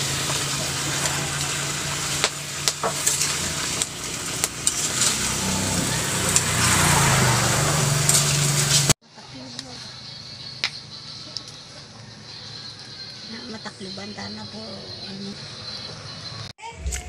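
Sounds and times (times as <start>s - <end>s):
vegetables sizzling in a wok: 0.0s - 9.0s
passing vehicle engine hum: 0.0s - 16.5s
metal spatula scraping a pan: 2.8s - 7.0s.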